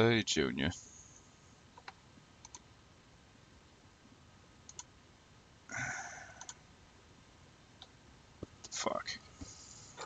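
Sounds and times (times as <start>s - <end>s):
computer mouse clicks: 1.8s - 2.6s, 4.7s - 4.9s, 6.4s - 6.6s.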